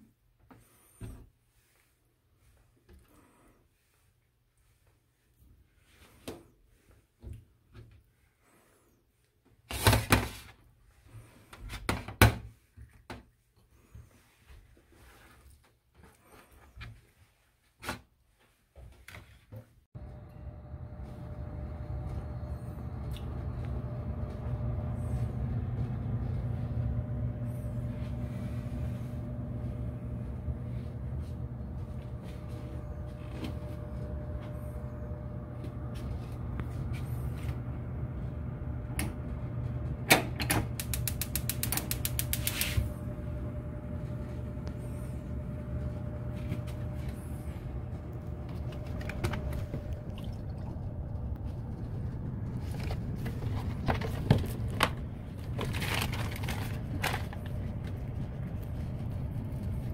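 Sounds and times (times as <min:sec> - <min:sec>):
gas hob humming: 0:20.0 - 0:59.9
run of sharp clicks: 0:40.8 - 0:42.7.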